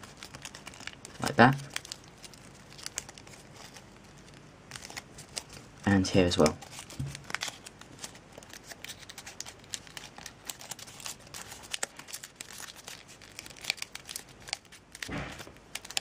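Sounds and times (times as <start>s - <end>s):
paper rustling and crinkling: 0.0s - 16.0s.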